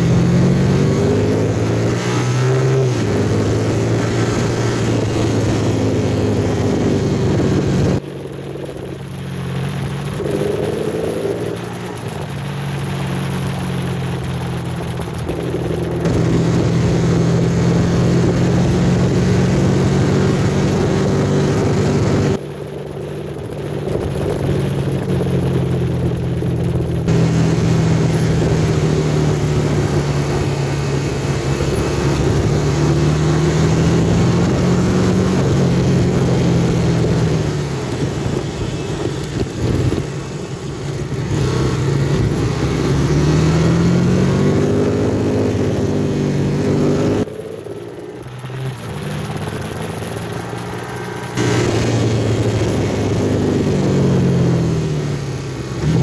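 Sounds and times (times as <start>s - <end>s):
vehicle engine running: 0.0s - 56.0s
wind or road noise hiss: 27.0s - 56.0s.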